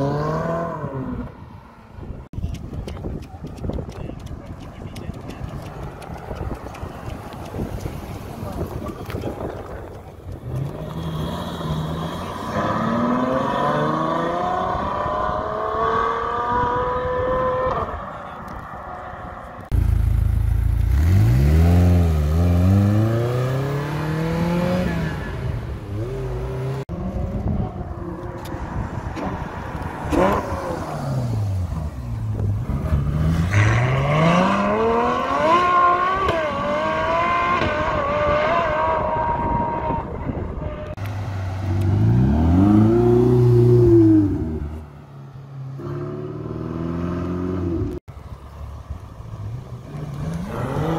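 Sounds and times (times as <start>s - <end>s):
sports cars accelerating hard: 10.4s - 19.7s, 20.9s - 44.8s, 49.7s - 50.9s.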